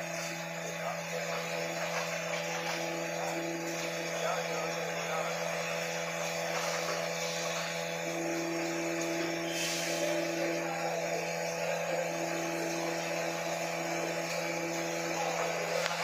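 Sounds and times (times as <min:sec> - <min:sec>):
factory machine hum: 0:00.0 - 0:16.0.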